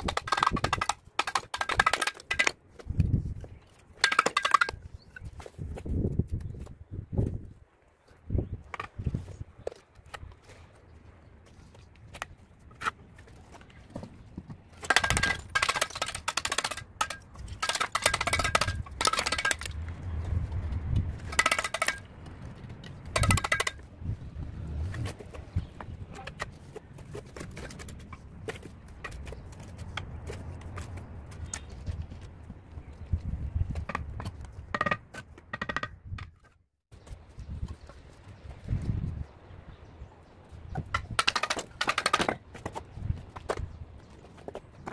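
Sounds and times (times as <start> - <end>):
steel trowel tapping on bricks: 0.0 - 2.6, 4.0 - 4.8, 14.8 - 19.7, 21.2 - 22.1, 23.2 - 23.8.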